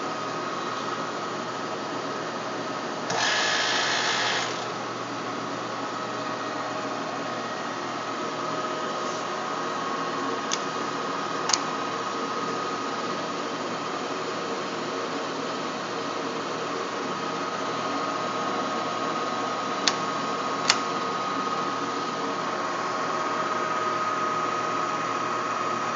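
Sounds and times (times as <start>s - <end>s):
lathe humming: 2.3s - 25.1s
sharp clicks: 11.5s - 11.7s, 19.8s - 20.0s, 20.6s - 20.9s.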